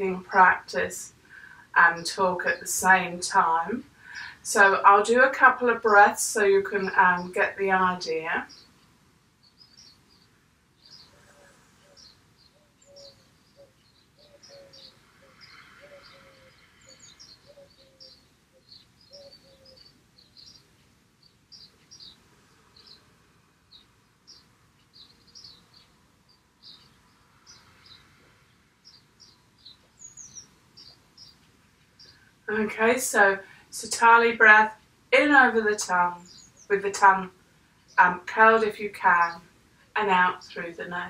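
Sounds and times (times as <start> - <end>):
small birds chirping: 0.0 - 41.0
faint slow breathing: 1.2 - 1.8, 3.9 - 4.4, 10.9 - 13.2, 14.4 - 18.2, 22.2 - 23.7, 27.0 - 29.4.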